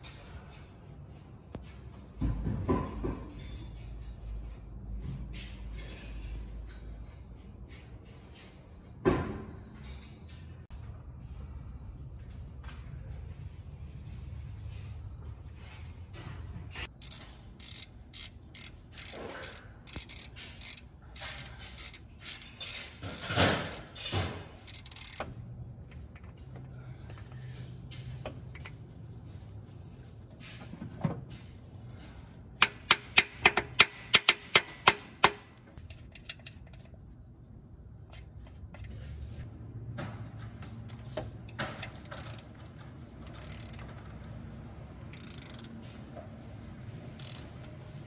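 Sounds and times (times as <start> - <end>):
ratchet wrench clicking: 16.8 - 25.4, 41.8 - 42.6, 43.2 - 43.9, 45.0 - 45.8, 47.1 - 47.6.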